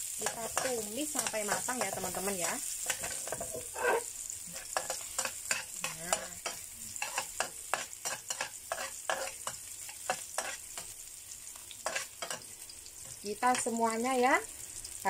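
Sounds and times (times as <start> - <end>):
oil sizzling: 0.0 - 15.0
metal spatula scraping a wok: 0.2 - 10.9, 11.8 - 12.4.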